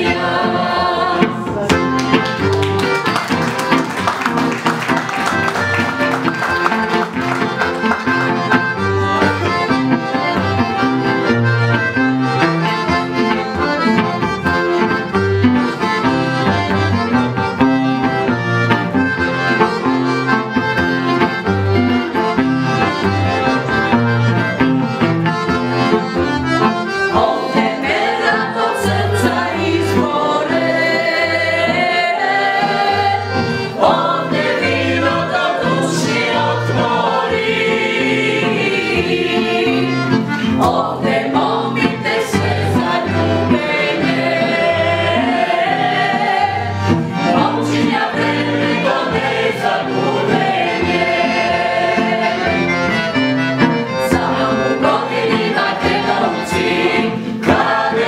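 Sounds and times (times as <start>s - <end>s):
people singing: 0.0s - 1.8s, 27.1s - 52.8s, 54.0s - 58.0s
accordion and guitar folk music: 0.0s - 58.0s.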